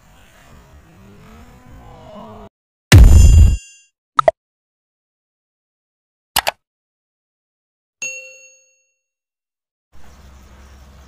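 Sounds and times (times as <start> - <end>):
bell ding: 3.0 - 3.9, 8.0 - 9.0
quick double click: 6.4 - 6.6.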